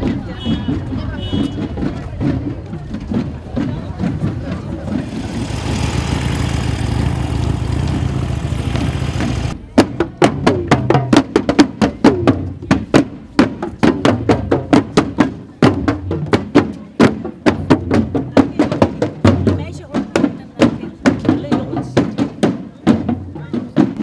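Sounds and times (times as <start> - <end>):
drums beaten in marching rhythm: 0.0 - 24.0
steady rush of noise: 4.7 - 9.7.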